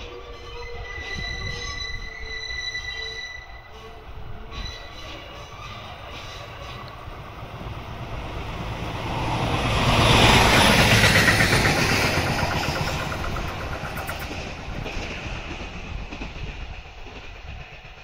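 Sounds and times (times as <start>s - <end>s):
train wheels clicking on rails: 6.1s - 18.0s.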